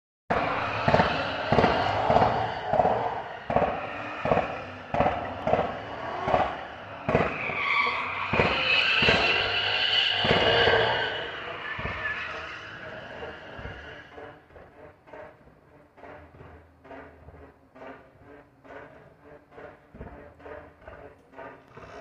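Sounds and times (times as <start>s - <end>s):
high drawn-out screech: 0.3s - 14.4s
car engine running: 0.3s - 22.0s
car exhaust bangs: 0.3s - 22.0s.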